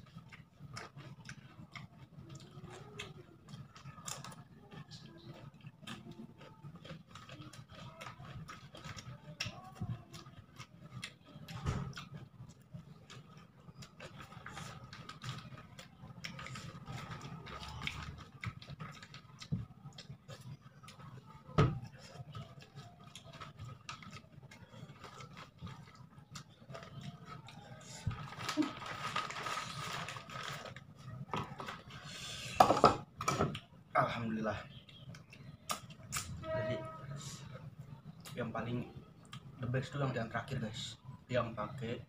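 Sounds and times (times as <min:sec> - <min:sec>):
chewing and lip smacking: 0:00.0 - 0:28.1
paper wrapper rustling: 0:28.0 - 0:32.0.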